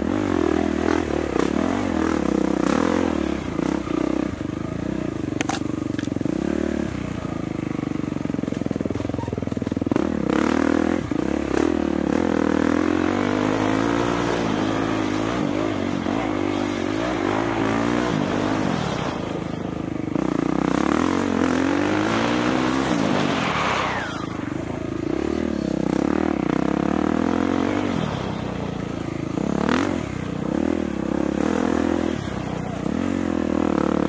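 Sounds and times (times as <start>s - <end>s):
dirt bike engine revving: 0.0s - 7.6s, 8.2s - 34.0s.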